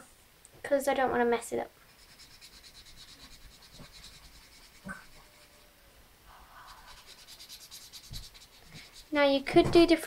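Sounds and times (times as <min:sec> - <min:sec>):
marker scratching on paper: 0:01.9 - 0:05.7, 0:06.6 - 0:09.2.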